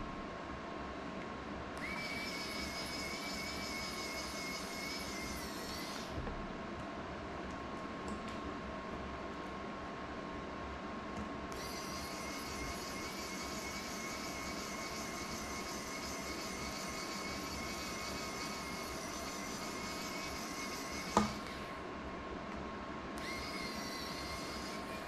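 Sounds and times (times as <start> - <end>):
low electrical hum: 0.0 - 25.0
electric blower whirring: 1.8 - 6.2, 11.5 - 21.8, 23.2 - 25.0.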